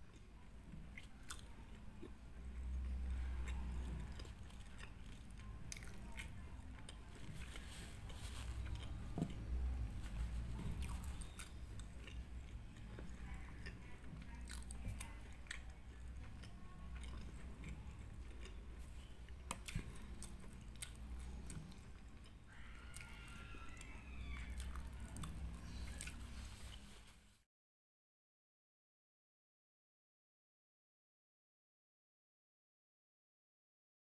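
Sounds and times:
person chewing: 0.0s - 27.0s
low steady hum: 0.0s - 27.4s.

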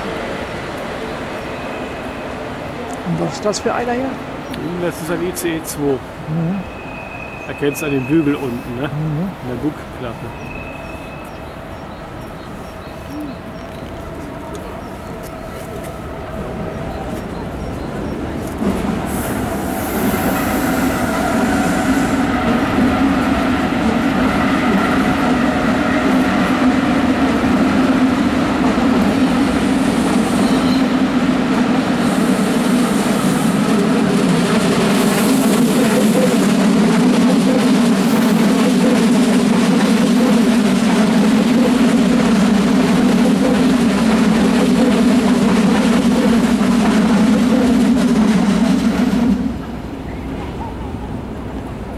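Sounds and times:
electric train low drone: 8.8s - 51.9s
train whining tones: 13.0s - 50.6s.

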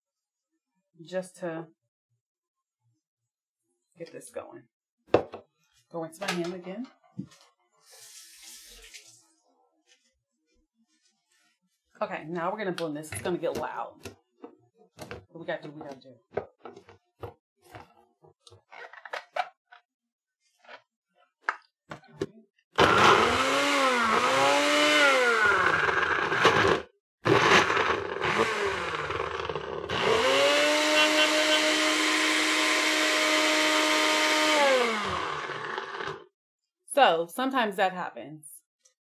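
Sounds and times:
blender motor running: 22.8s - 36.3s.

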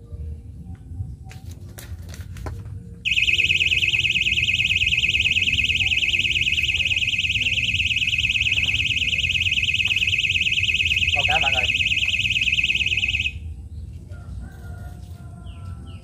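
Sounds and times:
cicadas buzzing: 3.1s - 13.4s.

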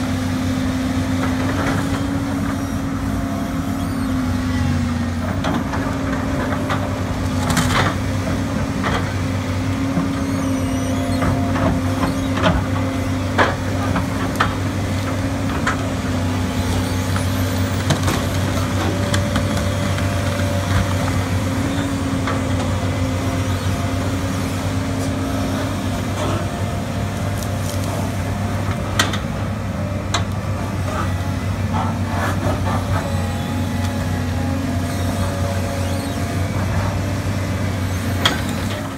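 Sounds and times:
diesel excavator engine: 0.0s - 38.9s
roots and wood cracking: 27.2s - 28.2s.

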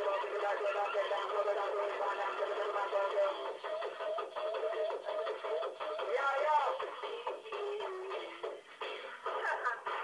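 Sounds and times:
man rapping over music: 0.0s - 8.0s.

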